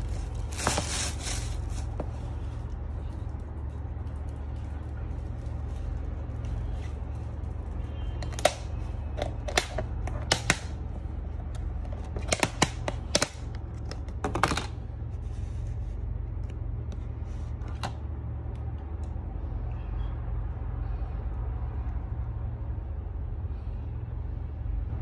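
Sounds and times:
steady low hum: 0.0 - 25.0
plastic lid clicking and crackling: 8.2 - 10.8, 11.5 - 14.7.

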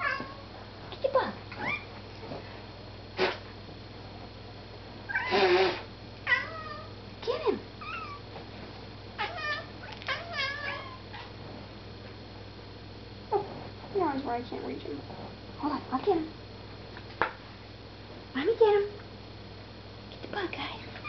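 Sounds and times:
cat meowing and chirping: 7.8 - 8.2, 9.2 - 11.0.

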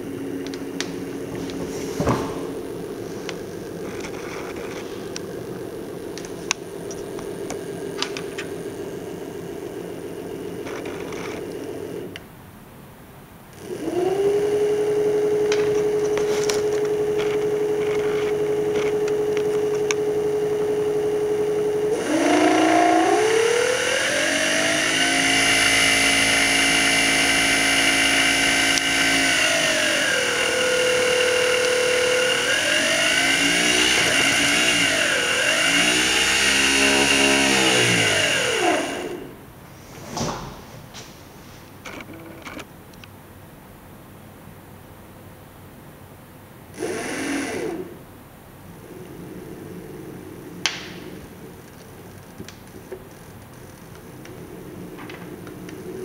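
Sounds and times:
electric motor whining: 0.0 - 12.1, 13.6 - 39.4, 46.8 - 48.0, 48.8 - 51.7, 53.7 - 56.0.

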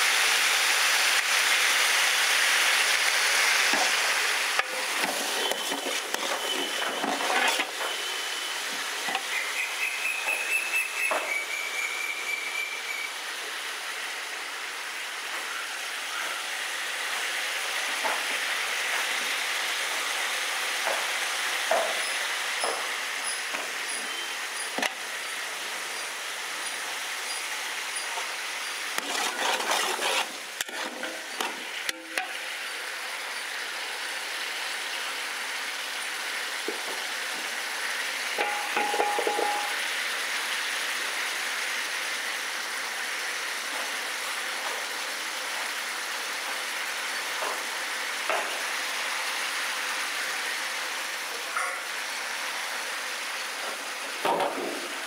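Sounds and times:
vegetables sizzling in a pot: 0.0 - 55.0
brief tone: 5.4 - 7.0, 7.8 - 13.2, 15.4 - 16.5, 23.2 - 24.7, 38.4 - 39.8
metal rod clattering against pot: 38.4 - 39.7.

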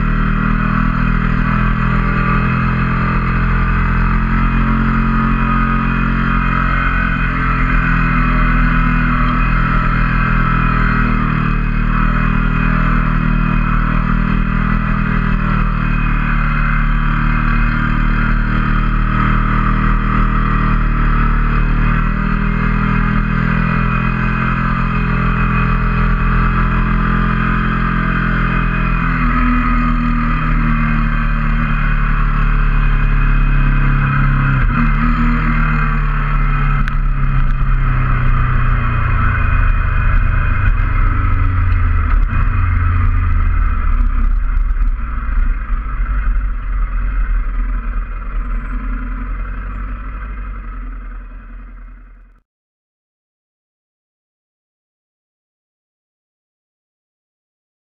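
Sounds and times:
motorcycle engine running: 0.0 - 52.4
wind rush on microphone: 36.6 - 48.2.

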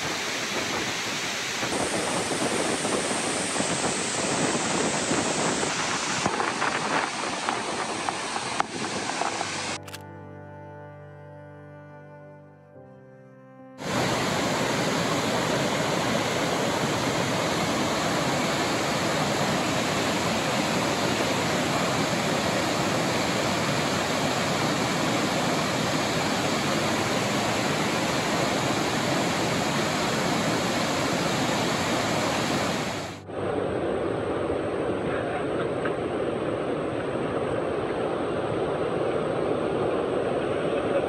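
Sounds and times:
waterfall rushing: 0.0 - 9.8, 13.8 - 34.9.

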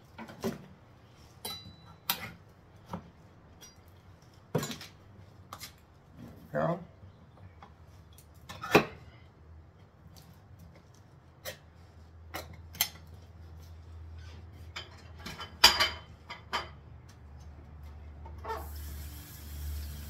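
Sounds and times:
dishes and utensils clattering: 14.6 - 16.8.

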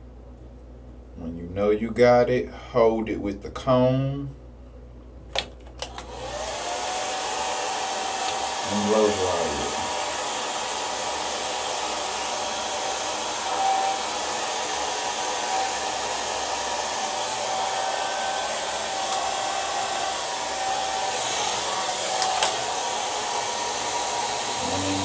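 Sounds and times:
hair dryer blowing: 5.8 - 25.0.

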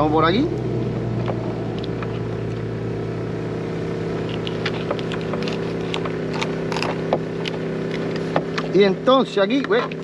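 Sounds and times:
motorboat engine droning: 0.0 - 10.0
knife scraping fish fillet: 4.2 - 8.3.

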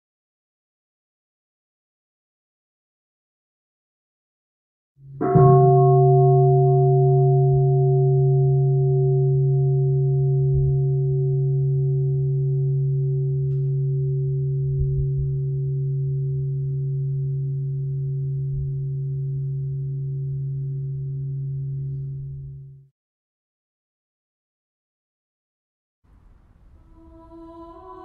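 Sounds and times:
low drone tone: 5.0 - 22.9.

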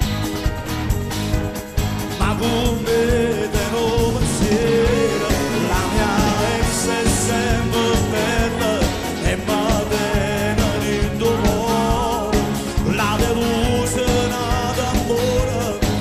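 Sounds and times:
live pop band playing: 0.0 - 16.0
female backing singers: 3.3 - 12.6.

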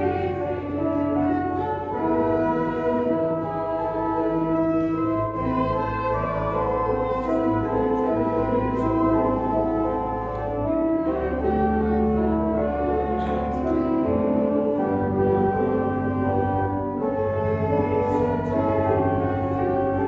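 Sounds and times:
slow instrumental music: 0.0 - 20.0.

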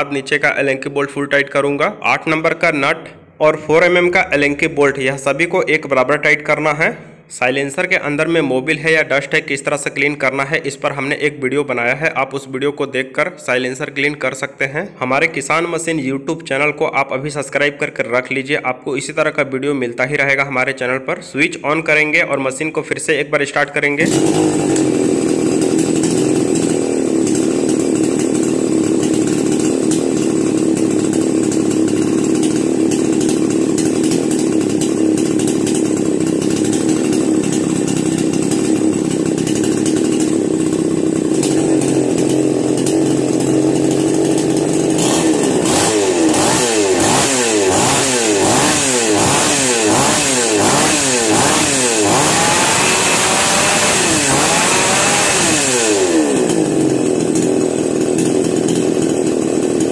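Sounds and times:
chainsaw engine idling and revving: 23.9 - 59.9.

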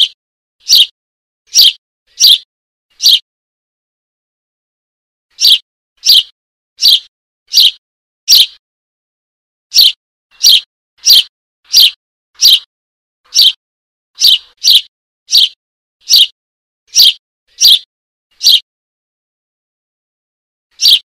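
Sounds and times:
baby sparrow begging chirps: 0.0 - 3.2, 5.3 - 8.6, 9.7 - 12.7, 13.3 - 13.6, 14.2 - 18.7, 20.7 - 21.0.

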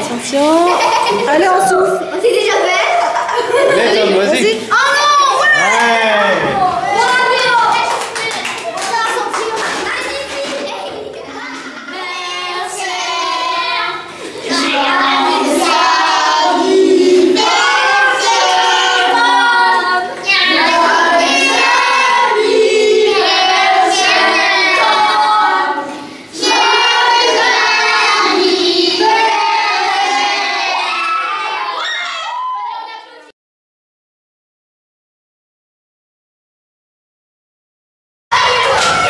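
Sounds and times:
children singing: 11.2 - 31.9.

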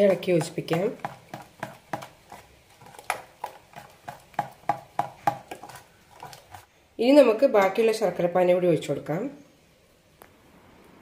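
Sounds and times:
spoon stirring batter in metal pot: 0.0 - 6.7.

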